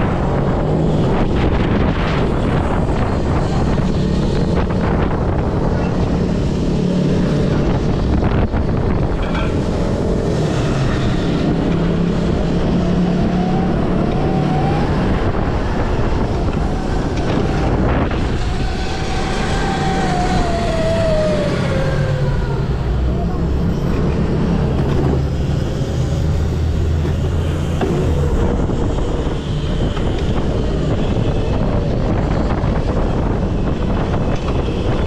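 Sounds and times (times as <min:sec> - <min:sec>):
wind noise on microphone: 0:00.0 - 0:35.0
electric motor whine: 0:10.0 - 0:23.8.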